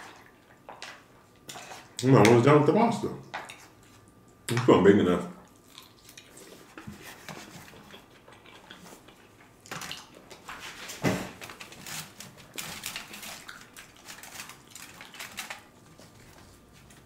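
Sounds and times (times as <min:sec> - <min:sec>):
chewing pasta: 0:05.4 - 0:10.6, 0:11.4 - 0:17.0.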